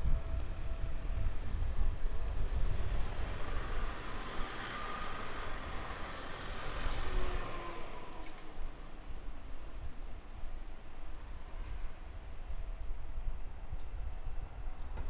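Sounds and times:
street noise: 0:00.0 - 0:15.0
small truck driving past: 0:02.5 - 0:09.6.

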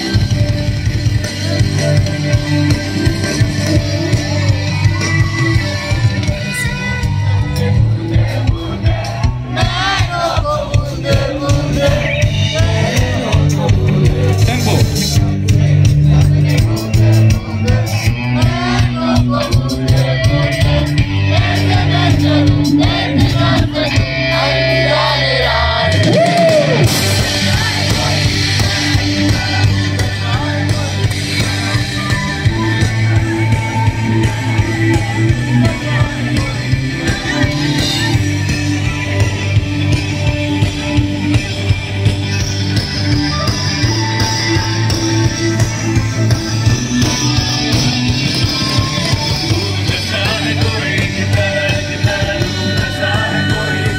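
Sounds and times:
drum beat: 0:00.0 - 0:25.1, 0:25.8 - 0:53.9
crowd shouting: 0:00.0 - 0:53.9
live rock band playing: 0:00.0 - 0:53.9
person singing: 0:47.0 - 0:53.9.

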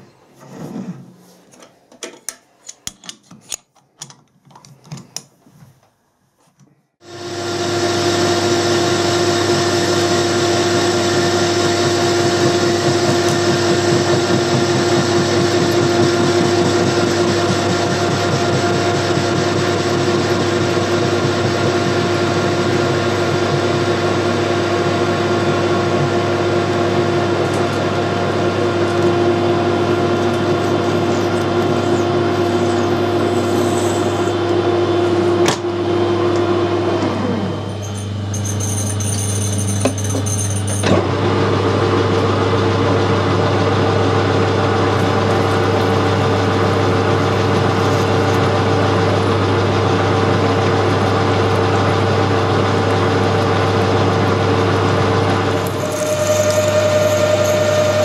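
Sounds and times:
metal clicks and knocks: 0:01.6 - 0:05.3
metal lathe running: 0:07.0 - 0:58.0.

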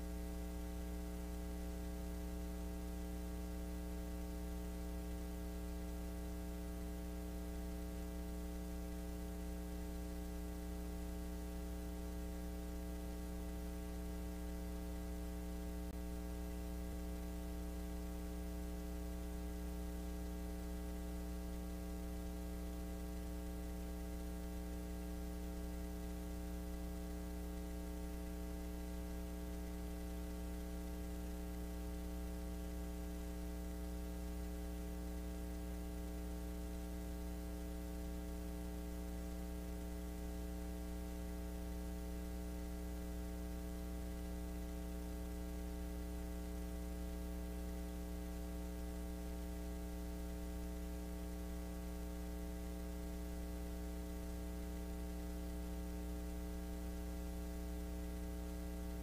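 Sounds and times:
electrical mains hum: 0:00.0 - 0:59.0.

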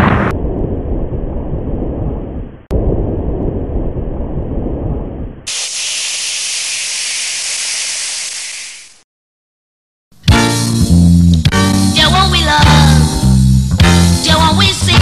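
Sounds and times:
deep rumbling noise: 0:00.0 - 0:05.5
steady high hiss: 0:05.5 - 0:09.0.

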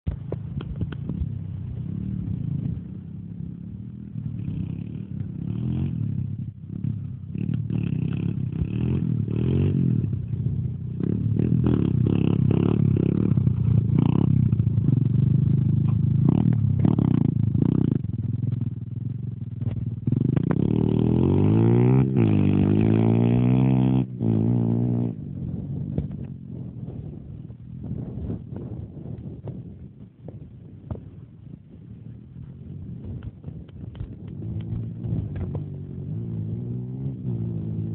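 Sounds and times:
motorbike engine revving: 0:00.1 - 0:27.2, 0:32.5 - 0:37.9.

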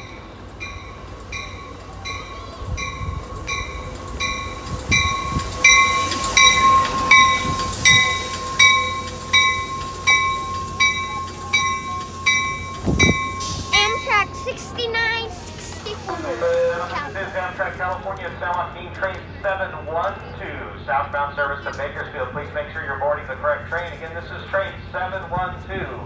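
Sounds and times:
train warning bell ringing: 0:00.0 - 0:17.4
passing train rumble: 0:00.0 - 0:26.0.

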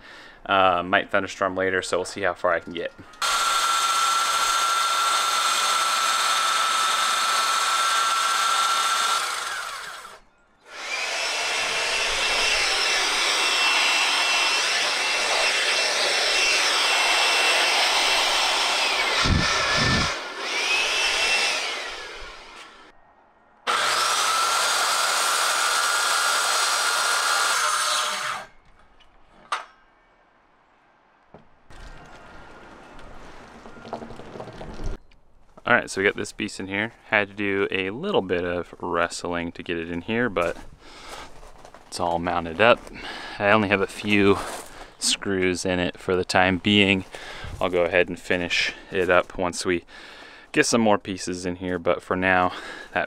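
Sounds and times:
circular saw cutting plywood: 0:03.2 - 0:22.9, 0:23.7 - 0:28.6
leaf blower whine: 0:03.2 - 0:22.9, 0:23.7 - 0:28.6.

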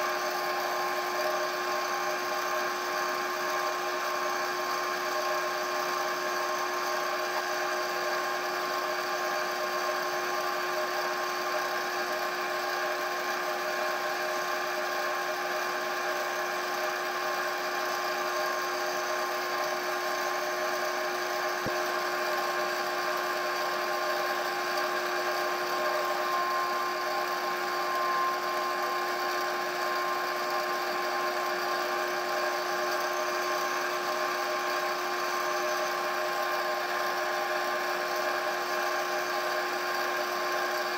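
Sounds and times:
wood lathe motor whine: 0:00.0 - 0:40.9.

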